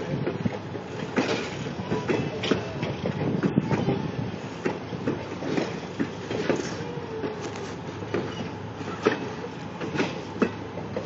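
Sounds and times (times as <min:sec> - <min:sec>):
low train rumble: 0:00.0 - 0:11.0
train wheels clanking over rail joints: 0:00.0 - 0:11.0
faint wheel squeal: 0:06.6 - 0:09.3.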